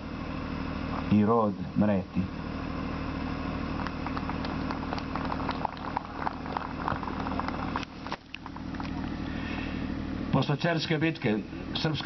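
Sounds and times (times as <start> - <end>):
low hum: 2.3 - 10.4.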